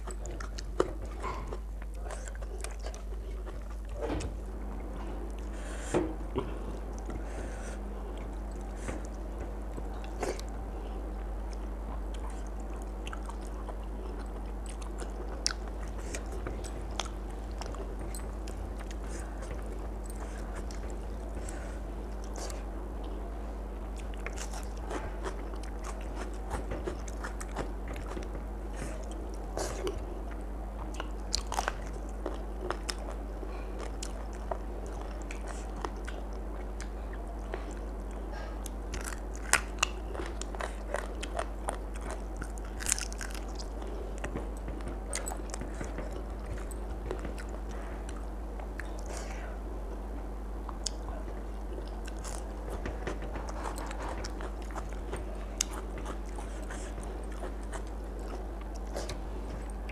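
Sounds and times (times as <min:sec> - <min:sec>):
person chewing food: 0:00.0 - 0:59.9
steady low hum: 0:00.0 - 0:59.9.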